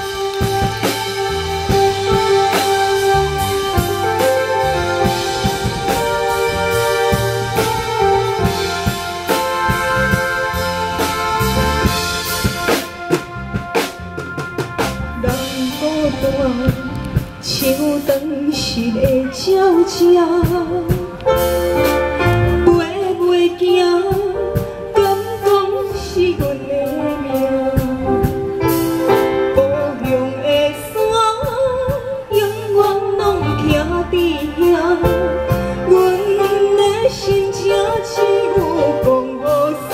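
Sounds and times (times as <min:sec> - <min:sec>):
backing music with drum beat: 0:00.0 - 0:39.9
woman singing into microphone: 0:15.1 - 0:21.6, 0:22.5 - 0:39.9.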